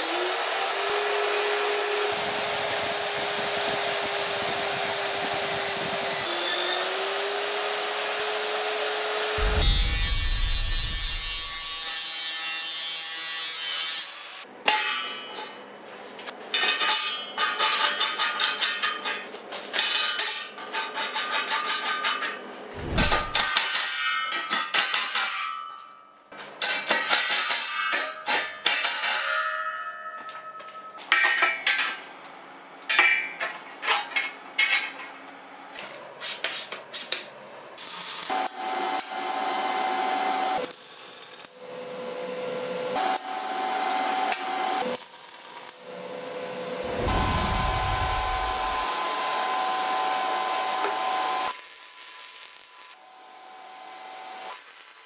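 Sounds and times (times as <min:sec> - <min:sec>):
angle grinder cutting steel: 0:05.6 - 0:14.2.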